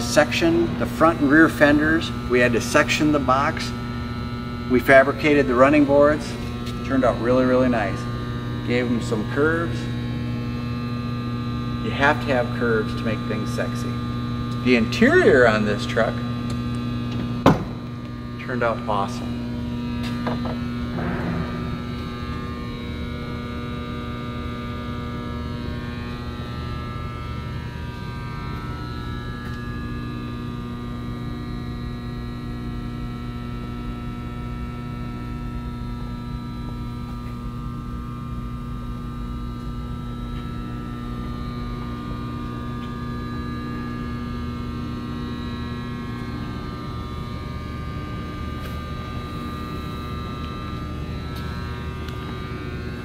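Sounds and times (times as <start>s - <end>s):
steady hum: 0.0s - 53.0s
low rumble: 20.8s - 23.5s.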